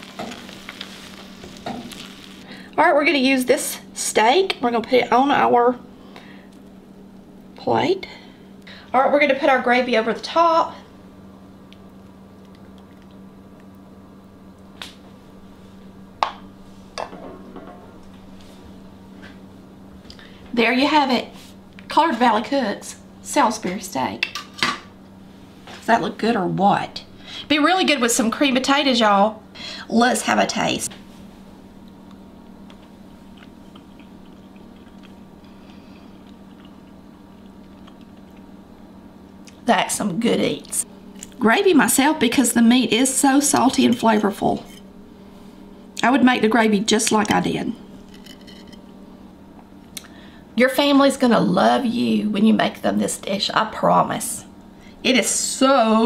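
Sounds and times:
faint steady hum: 0.0 - 56.0.

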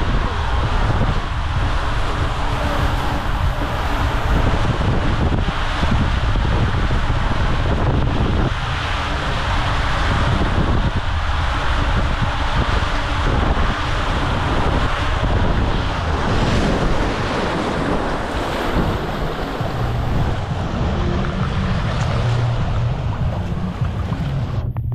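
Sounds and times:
water rushing down a tube slide: 0.0 - 24.9
water sloshing and lapping: 0.1 - 24.9.

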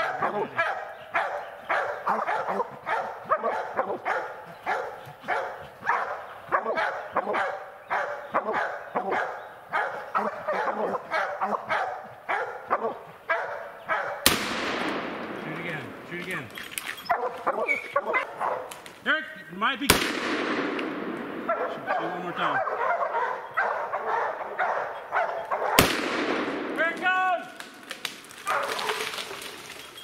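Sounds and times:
hounds barking: 0.0 - 14.3, 17.0 - 18.8, 21.3 - 25.9, 28.4 - 29.5.

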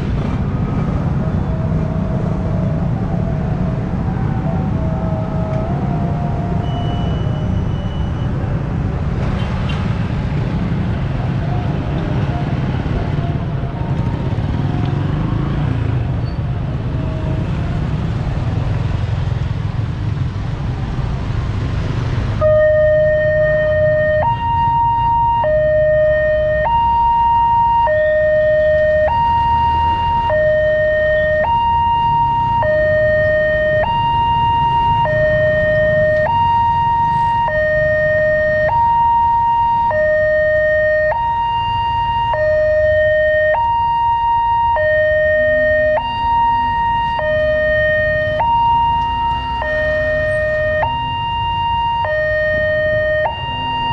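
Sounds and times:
motorbike and car traffic: 0.0 - 53.9
two-tone level crossing alarm: 22.4 - 53.9.

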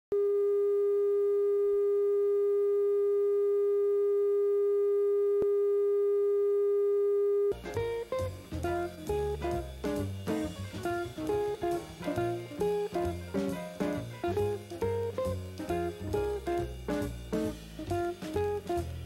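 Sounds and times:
plucked guitar music: 7.5 - 19.0.

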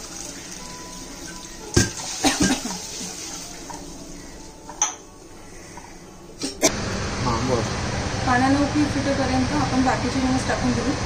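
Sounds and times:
water pouring into frying pan: 0.0 - 4.5.

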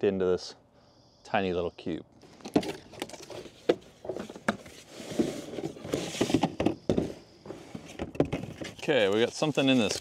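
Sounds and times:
cardboard rustling and scraping: 2.4 - 10.0.

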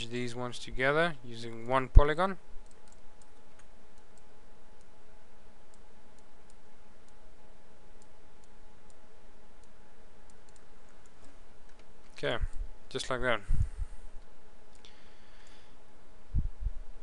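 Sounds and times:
low hum and hiss: 0.0 - 17.0
computer mouse clicks: 2.6 - 4.9, 9.6 - 11.9.

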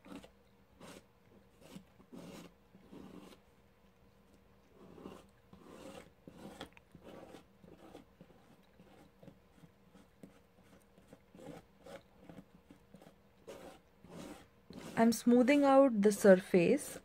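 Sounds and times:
palette knife scraping paste: 0.0 - 3.5, 4.6 - 17.0.

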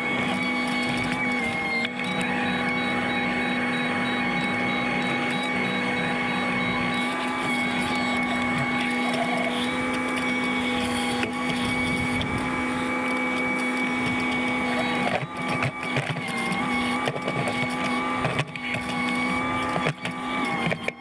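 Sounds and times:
high hydraulic whine: 0.0 - 20.6
excavator engine drone: 0.0 - 21.0.

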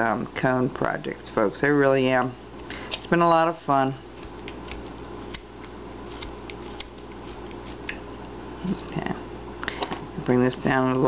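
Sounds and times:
low steady hum: 0.0 - 11.0
knife slicing wood shavings: 6.1 - 7.9.

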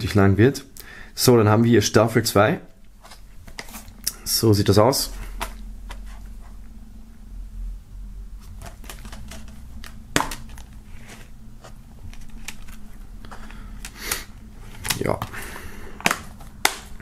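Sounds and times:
case and discs clicking: 8.4 - 11.3, 12.0 - 14.0, 14.7 - 15.4, 16.0 - 17.0
dvd case snapping open: 8.6 - 10.7, 14.8 - 15.3.

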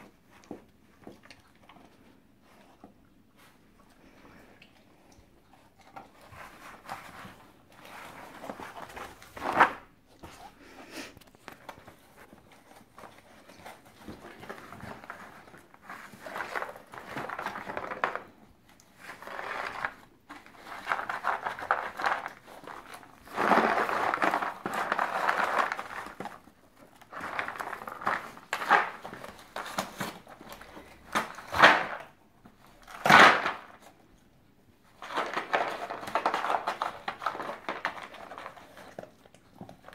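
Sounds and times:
cardboard rustling and crinkling: 5.5 - 10.6, 11.2 - 34.0, 34.8 - 39.9.

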